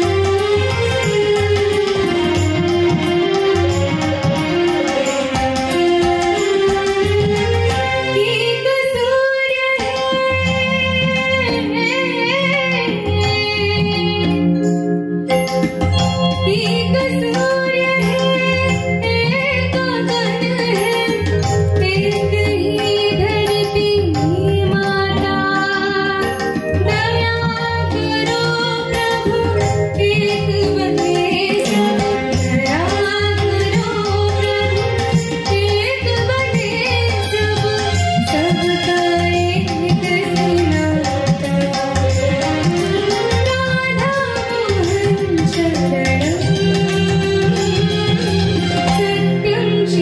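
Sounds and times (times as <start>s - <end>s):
woman singing devotional song: 6.0s - 14.8s, 16.3s - 50.0s
tabla strokes: 15.4s - 49.2s.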